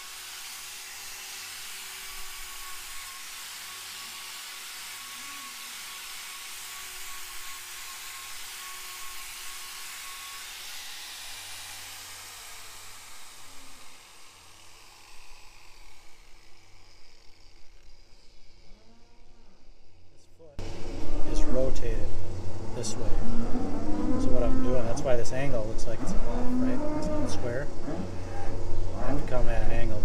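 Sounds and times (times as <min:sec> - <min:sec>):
angle grinder grinding hoof: 0:00.0 - 0:30.0
high whine: 0:17.6 - 0:30.0.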